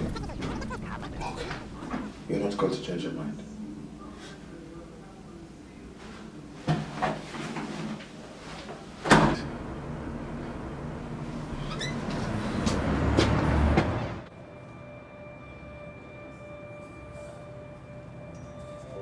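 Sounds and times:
rushing background noise: 0:00.0 - 0:02.3.

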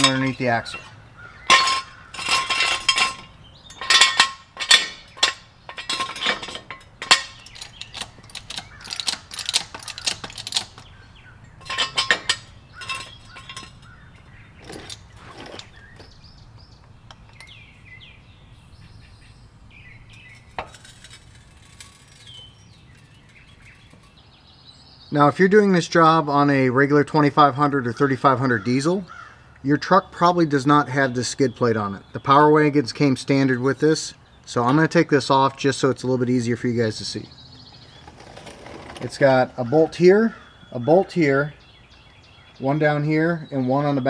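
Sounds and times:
metal jack stand clanking: 0:00.0 - 0:17.7, 0:19.8 - 0:24.4.

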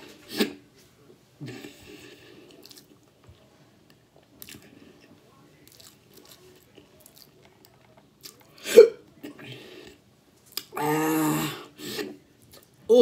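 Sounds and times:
person chewing: 0:01.5 - 0:03.1, 0:04.4 - 0:08.6, 0:10.4 - 0:11.0.

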